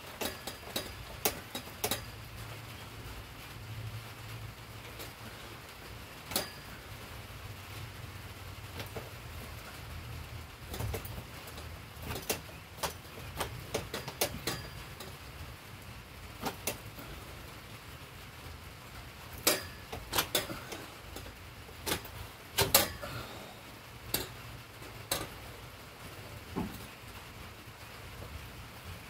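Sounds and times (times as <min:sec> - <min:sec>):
metal tent poles clanking: 0:00.0 - 0:03.0, 0:04.7 - 0:07.2, 0:08.6 - 0:17.4, 0:19.1 - 0:27.1.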